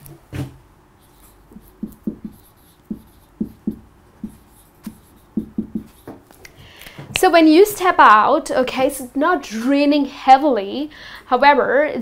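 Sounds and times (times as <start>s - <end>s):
marker squeaking on whiteboard: 1.0s - 6.2s.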